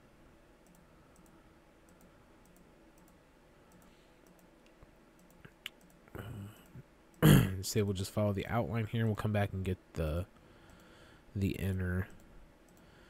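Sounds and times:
computer mouse clicks: 0.6 - 6.8, 12.2 - 12.9.

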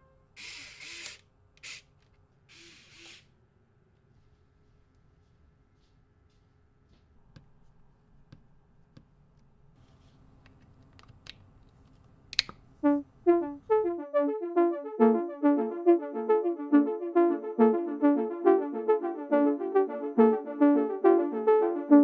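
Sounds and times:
switch clicks: 12.3 - 12.6.

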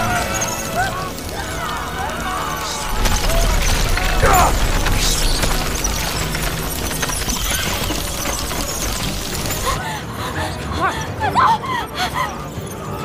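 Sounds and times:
deep rumble: 1.0 - 9.8
dense clatter: 2.8 - 9.8.

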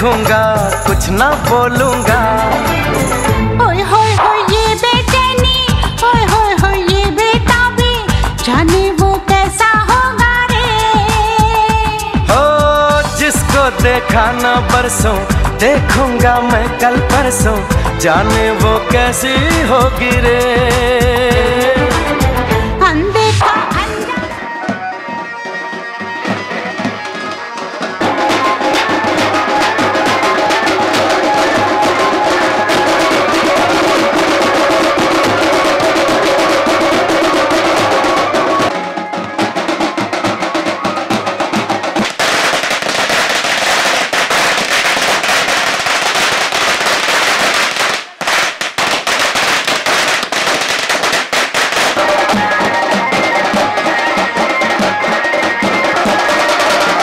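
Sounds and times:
barrel drums beaten with sticks: 26.3 - 57.0.

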